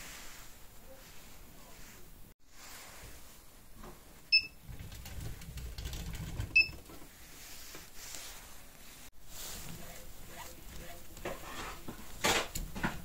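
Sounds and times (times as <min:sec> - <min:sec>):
short beeps: 0:04.3 - 0:04.6.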